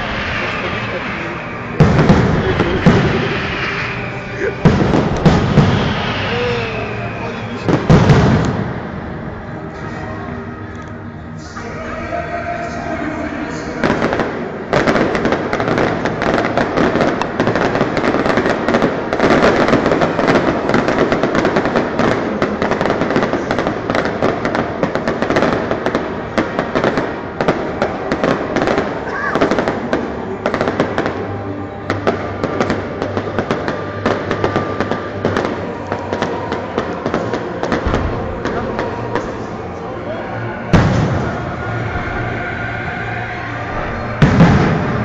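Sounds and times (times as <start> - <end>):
fireworks bursting: 0.0 - 10.1, 11.5 - 45.0.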